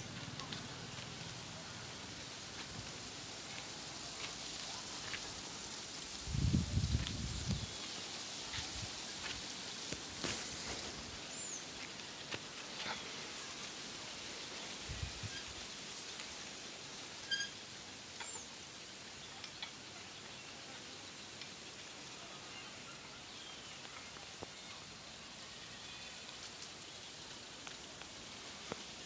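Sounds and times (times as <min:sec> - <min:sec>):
steady high hiss: 0:00.0 - 0:29.0
short high squeak: 0:17.3 - 0:17.6.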